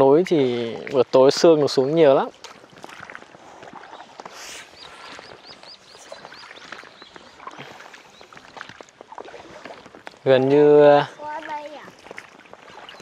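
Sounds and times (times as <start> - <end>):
oars splashing in water: 0.0 - 13.0
bird chirping: 3.8 - 8.5.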